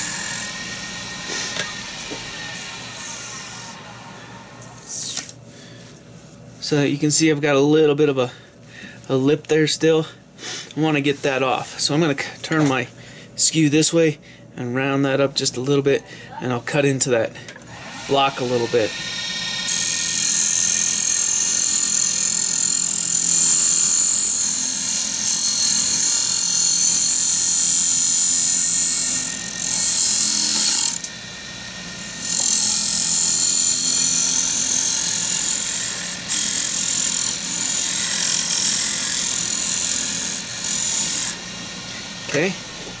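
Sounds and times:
lathe humming: 0.0 - 4.9, 17.6 - 43.0
chisel hissing on spinning wood: 18.0 - 24.2.

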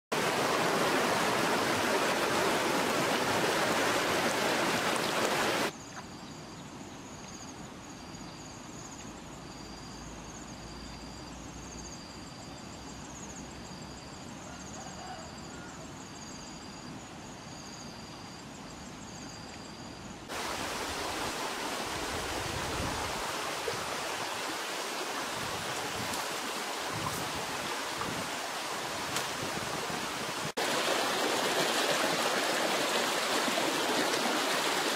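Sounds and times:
river rushing over rocks: 0.2 - 5.7, 20.3 - 34.9.

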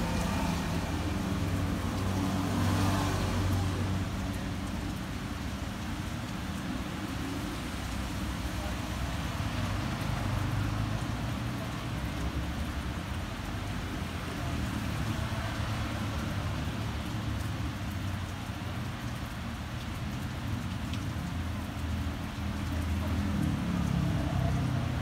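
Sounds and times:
traffic rumble: 0.0 - 25.0.

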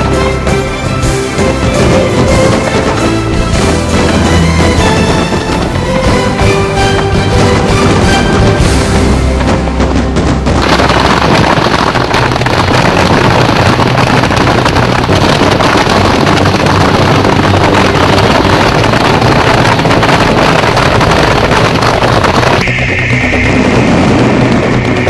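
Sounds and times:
fireworks hissing and crackling: 8.6 - 25.0.

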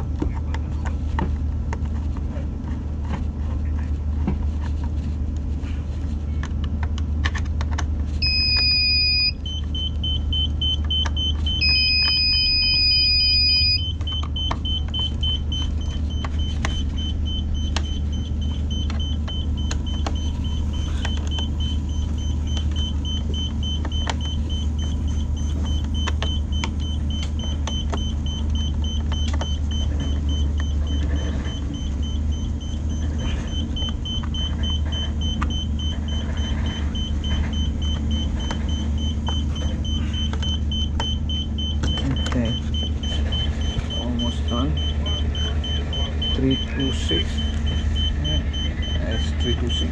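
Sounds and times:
low machinery hum: 0.0 - 49.9
electronic beep: 8.2 - 49.9
high-pitched electronic whine: 11.4 - 49.9.

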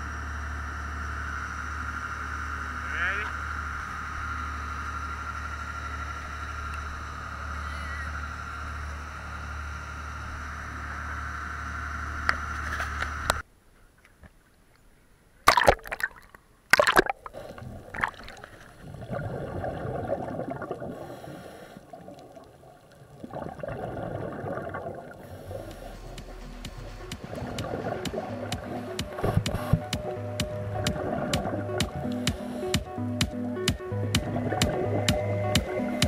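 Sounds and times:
boat engine droning: 0.0 - 13.4, 17.2 - 36.0
underwater sharp bursts: 15.5 - 36.0
gurgling scuba bubbles: 16.8 - 26.2, 27.2 - 29.9, 30.7 - 32.3.

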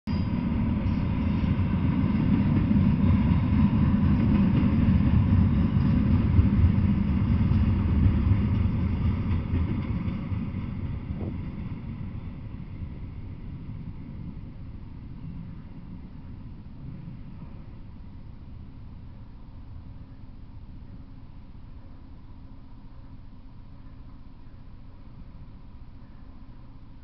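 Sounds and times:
freight train rumbling past: 0.1 - 22.9.

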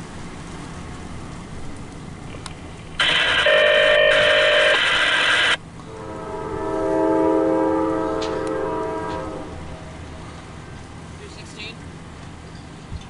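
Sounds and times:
locomotive air horn blasts: 3.0 - 10.3.

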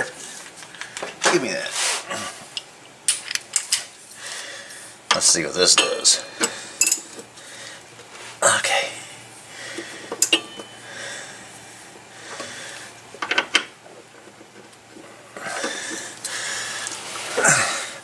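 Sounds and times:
tools clinking on metal: 10.2 - 10.8.

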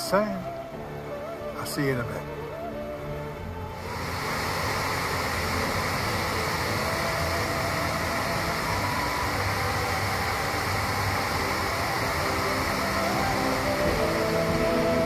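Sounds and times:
water rushing over a dam spillway: 3.8 - 15.0.

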